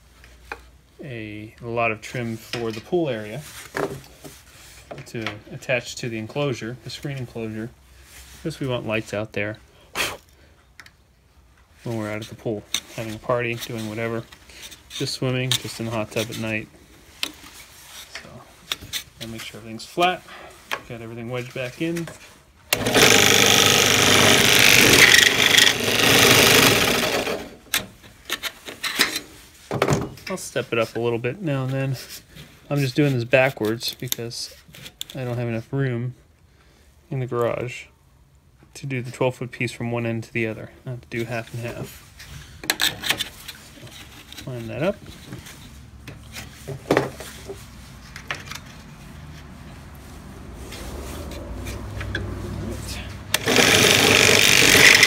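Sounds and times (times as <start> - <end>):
drill press grinding through metal: 22.8 - 27.6, 53.3 - 55.0.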